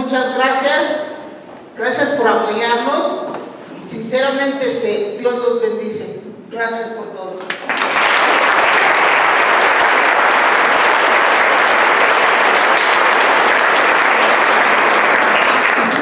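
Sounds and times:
audience applauding: 7.5 - 16.0.

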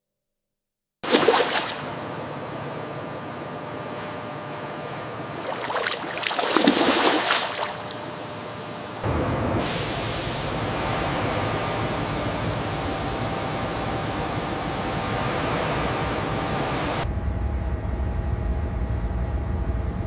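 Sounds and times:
water churning and surging: 1.0 - 2.0, 5.4 - 8.1
steady spray hiss: 9.6 - 17.0.

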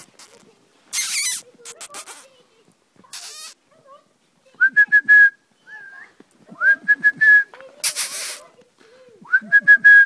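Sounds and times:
brief hiss: 0.0 - 2.3, 7.8 - 8.5.

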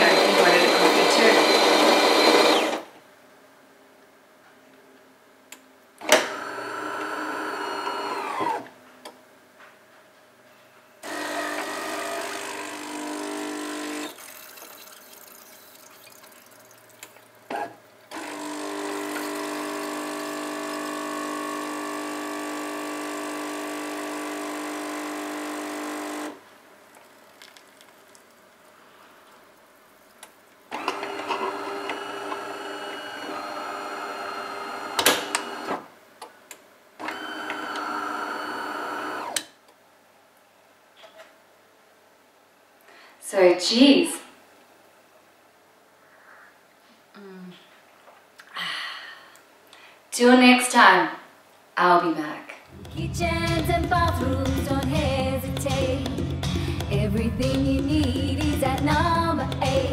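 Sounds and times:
coffee machine motor and pump: 0.0 - 2.8, 6.1 - 8.6, 11.0 - 16.5, 17.5 - 26.4, 30.8 - 35.8, 37.0 - 39.4
espresso pouring into cup: 12.3 - 17.4, 18.1 - 26.4, 27.0 - 28.5.

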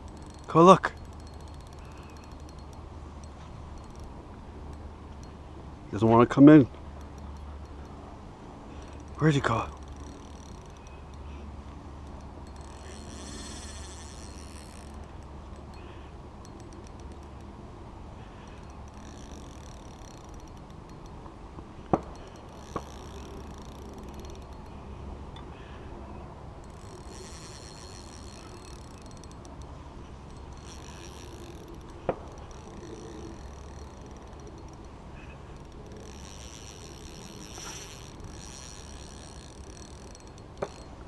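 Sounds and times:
fishing reel clicking: 0.0 - 5.4, 6.6 - 8.0, 8.7 - 17.6, 18.2 - 21.2, 22.1 - 24.9, 26.6 - 41.0.

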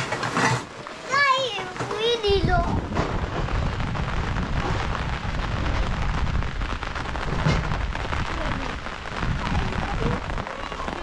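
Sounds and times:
rain pattering: 0.0 - 11.0
low rumble: 2.2 - 11.0.

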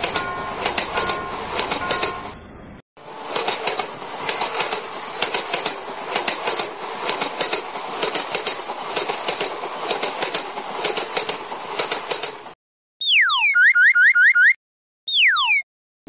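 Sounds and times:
train wheels clacking on rails: 0.0 - 2.4, 3.0 - 12.6.

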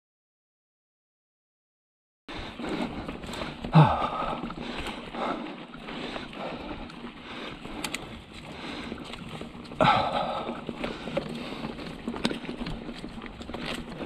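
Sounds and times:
bike rattling and clattering: 2.3 - 14.0
bike tyres on dirt: 2.3 - 14.0.

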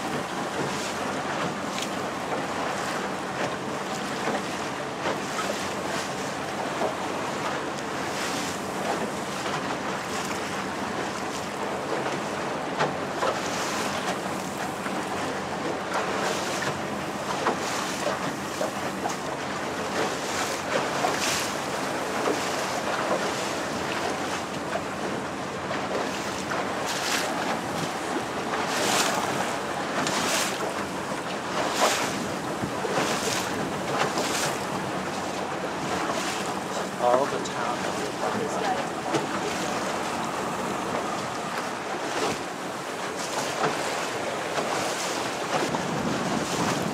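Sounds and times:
boat engine hum: 0.0 - 46.9
sea water wash: 0.0 - 46.9
wind noise on microphone: 45.5 - 46.9.

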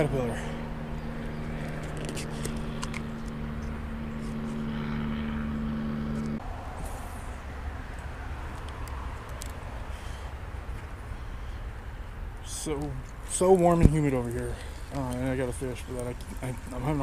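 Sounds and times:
low engine-like drone: 0.0 - 17.0
light clicks and rustles: 1.6 - 3.4, 7.9 - 9.6, 12.6 - 17.0.

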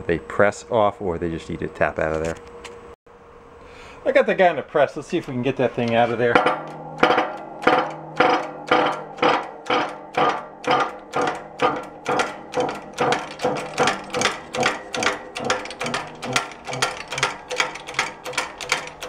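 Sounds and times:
hydraulic press clacking: 5.2 - 19.0
short metallic ring: 6.4 - 19.0.

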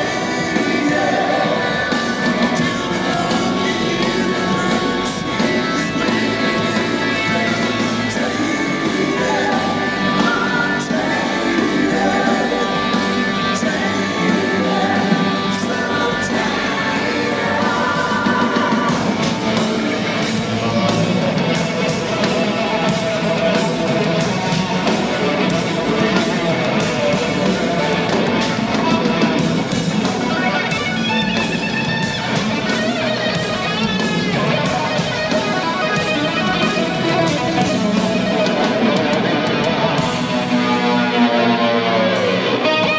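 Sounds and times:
person singing: 0.0 - 30.6
live rock band playing: 0.0 - 42.9.

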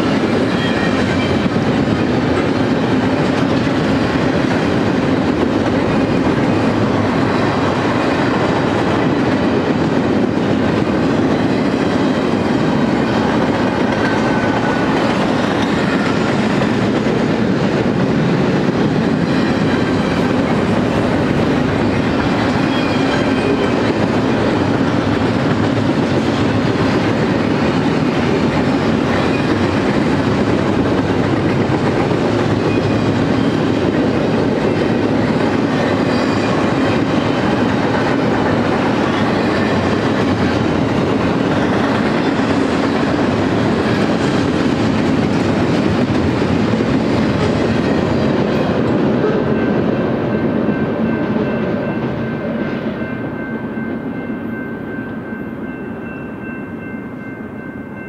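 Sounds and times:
freight train wheels rumbling: 0.0 - 58.0
high wheel squeals: 22.0 - 23.8, 35.7 - 37.4.

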